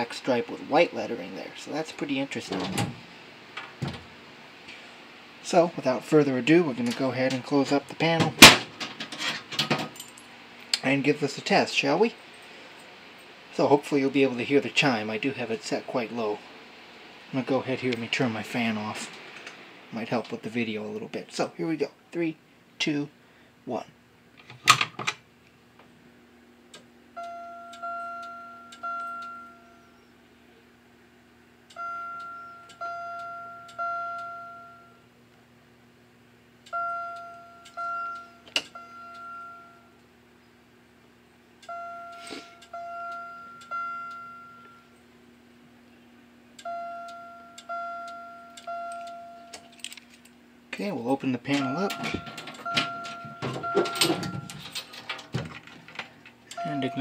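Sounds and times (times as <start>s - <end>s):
steady low hum: 0.0s - 57.0s
fire alarm pull station clunk: 8.2s - 8.7s, 36.7s - 39.8s, 41.7s - 44.8s, 46.6s - 50.0s, 51.5s - 57.0s
two-tone alarm chime dings: 27.2s - 30.0s, 31.8s - 35.0s, 36.7s - 39.9s, 41.7s - 44.9s, 46.6s - 49.8s, 51.5s - 54.8s, 56.5s - 57.0s.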